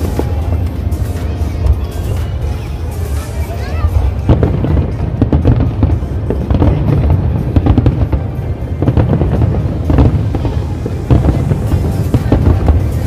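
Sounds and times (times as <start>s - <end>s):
fireworks bangs and crackles: 0.0s - 13.0s
music playing: 0.0s - 13.0s.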